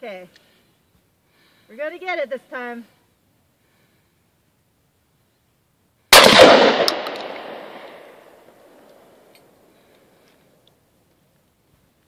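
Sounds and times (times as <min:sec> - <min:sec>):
shotgun shot with echo: 0:06.2 - 0:08.3.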